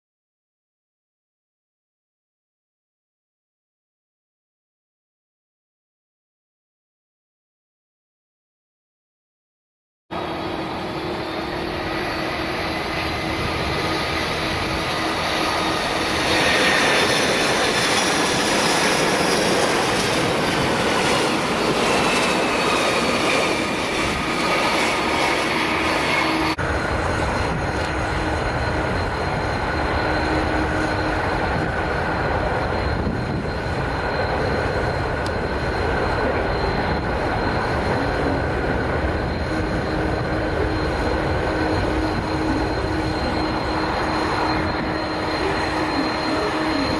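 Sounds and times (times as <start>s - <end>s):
jet engines whining: 10.1s - 46.9s
steady aircraft engine noise: 10.1s - 46.9s.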